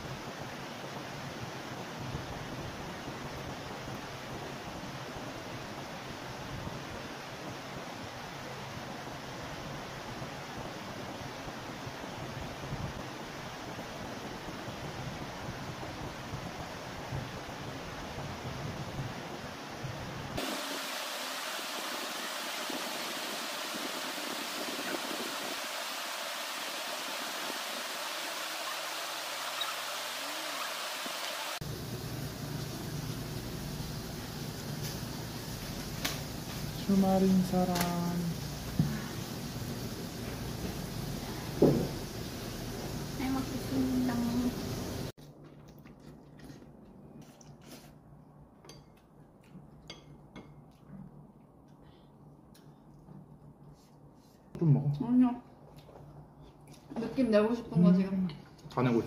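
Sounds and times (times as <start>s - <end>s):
steady hiss: 20.4s - 45.2s
chopsticks and spoon clinking dishes: 48.6s - 49.1s, 49.8s - 50.8s.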